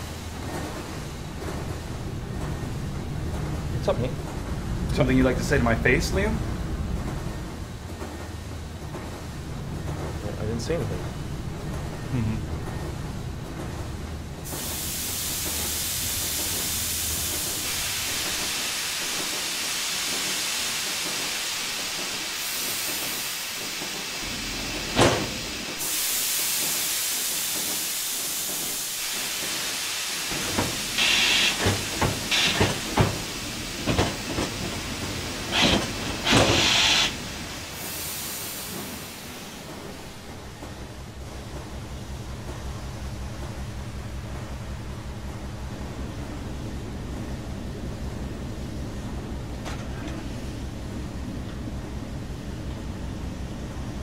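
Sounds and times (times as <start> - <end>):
steam hissing from press: 14.4 - 40.5
short steam blasts and knocks: 14.4 - 41.1.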